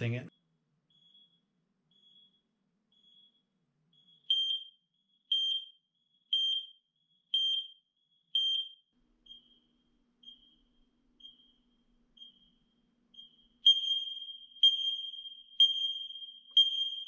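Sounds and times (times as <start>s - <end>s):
distant smoke alarm beeping: 0.0s - 17.0s
loud smoke alarm beeps: 0.9s - 17.0s.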